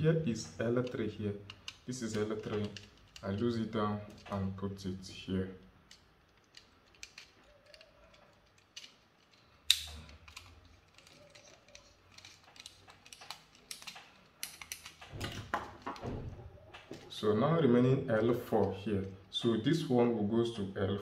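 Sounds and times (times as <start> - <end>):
screwdriver clicking and scraping: 5.9 - 15.2.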